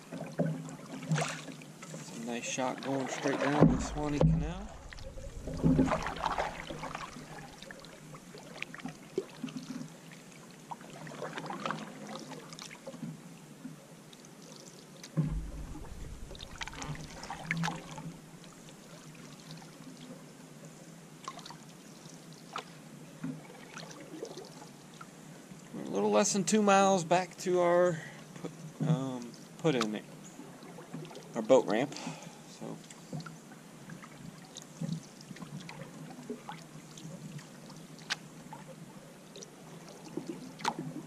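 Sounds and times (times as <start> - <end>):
paddle splashing in water: 0.0 - 13.0, 15.0 - 20.1, 29.7 - 31.3, 32.9 - 41.0
dull thump: 3.6 - 7.4, 15.2 - 18.2.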